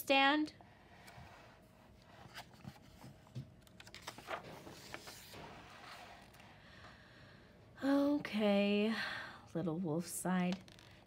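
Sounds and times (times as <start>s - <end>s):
book page turning: 2.0s - 6.4s.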